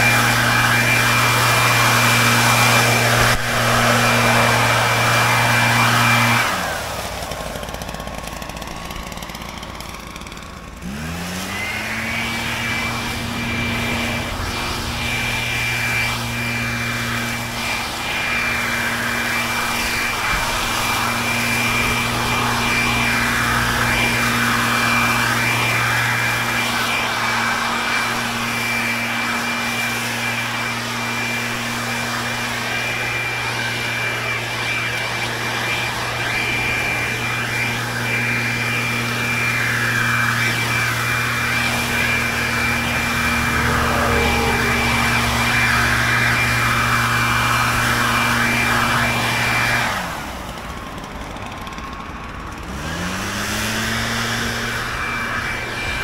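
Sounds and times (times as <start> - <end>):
leaf blower running: 0.0 - 56.0.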